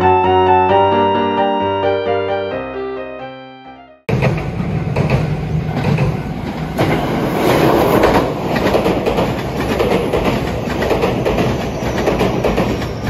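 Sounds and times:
electric train passing: 0:04.1 - 0:13.0
wheels clacking over rail joints: 0:04.1 - 0:13.0.

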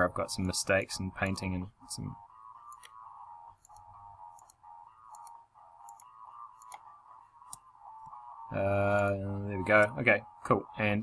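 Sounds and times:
faint steady hum: 0:00.0 - 0:11.0
computer mouse clicks: 0:02.6 - 0:03.0, 0:03.6 - 0:08.2, 0:08.9 - 0:09.9.

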